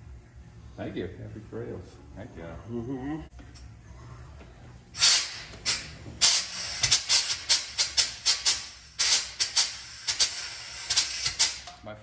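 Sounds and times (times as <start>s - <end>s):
compressed air hissing spurts: 5.0s - 11.6s.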